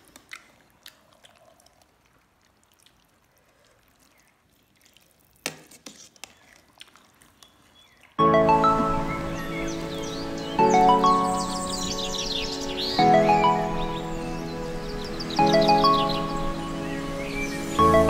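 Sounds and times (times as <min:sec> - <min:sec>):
ladle stirring soup in pot: 0:00.0 - 0:07.8
soup sloshing: 0:00.0 - 0:08.2
music: 0:08.2 - 0:18.0.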